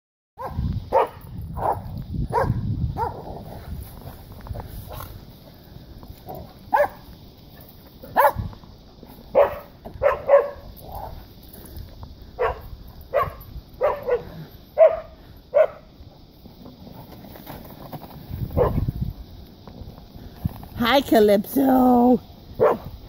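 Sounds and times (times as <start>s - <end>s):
dog barking: 0.4s - 3.3s, 6.7s - 7.0s, 8.2s - 8.4s, 9.3s - 11.1s, 12.4s - 15.8s, 18.6s - 18.8s, 22.6s - 22.9s.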